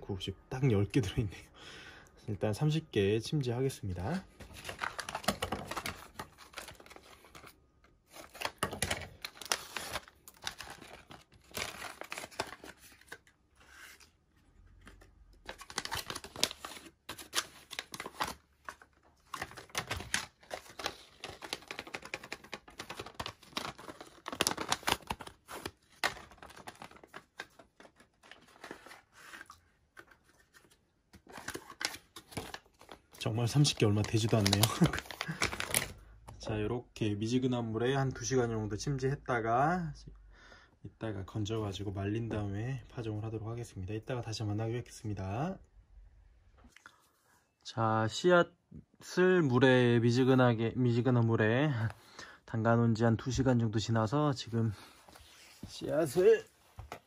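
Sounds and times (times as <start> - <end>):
paper packets tearing and rustling: 4.4 - 36.1.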